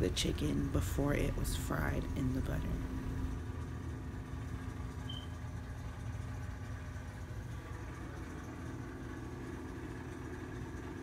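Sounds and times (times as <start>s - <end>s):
low background hum: 0.0s - 11.0s
faint high beep: 5.1s - 5.4s.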